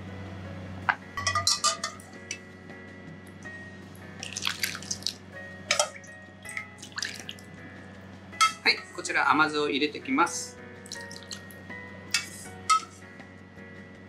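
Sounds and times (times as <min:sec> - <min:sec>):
soft background music: 0:00.0 - 0:14.0
liquid pouring and splashing: 0:04.2 - 0:05.2, 0:05.8 - 0:07.5, 0:10.9 - 0:11.5.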